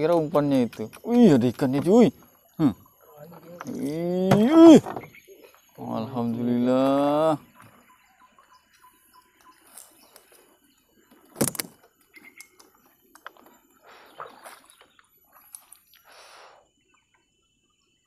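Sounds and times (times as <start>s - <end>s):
water splashing: 13.8s - 15.9s.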